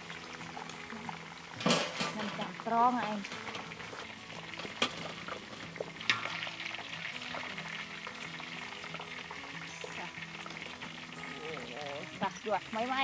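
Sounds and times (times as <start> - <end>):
deep-frying sizzle: 0.0 - 13.0
ladle clinking on metal: 1.6 - 2.5.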